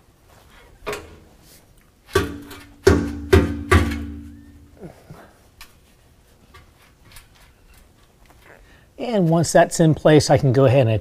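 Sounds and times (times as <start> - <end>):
metal pipe knocking and clanking: 2.1 - 4.4.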